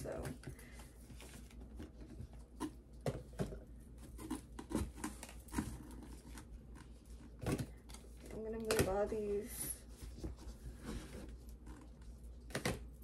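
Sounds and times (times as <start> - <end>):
plastic bottles knocking and rustling: 0.0 - 6.4.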